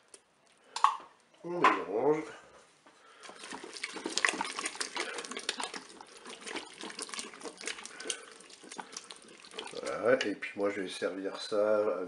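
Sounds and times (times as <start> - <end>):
spatula stirring thick stew: 3.0 - 10.5.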